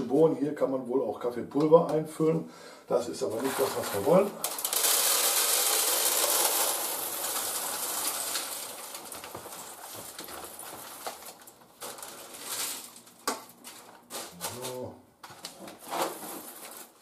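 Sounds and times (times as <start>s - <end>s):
coffee beans pouring: 3.2s - 14.1s.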